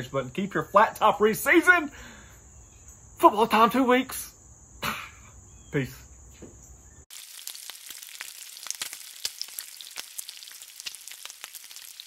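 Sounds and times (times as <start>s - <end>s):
bacon sizzling on a griddle: 7.1s - 12.0s
fat crackling and popping: 7.1s - 12.0s.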